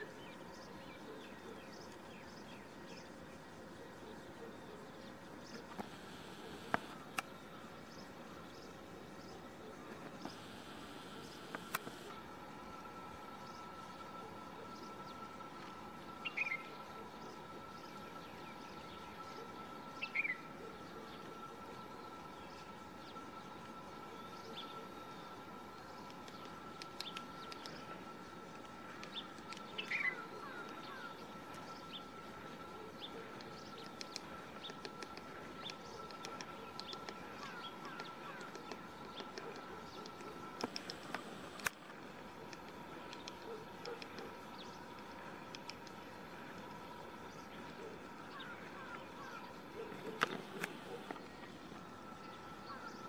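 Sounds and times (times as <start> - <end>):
faint steady high tone: 5.6 - 34.6
woodpecker tapping on bark: 33.8 - 41.7.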